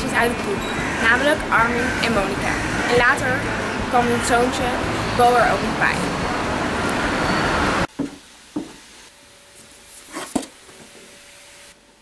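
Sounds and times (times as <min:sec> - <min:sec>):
loud traffic noise: 0:00.0 - 0:07.9.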